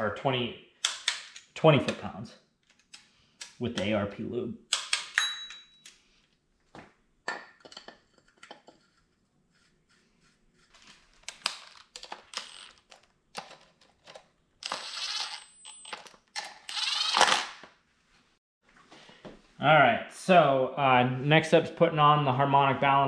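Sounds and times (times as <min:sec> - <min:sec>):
metal parts clinking: 0:11.2 - 0:17.6
cordless driver spinning: 0:14.6 - 0:17.6.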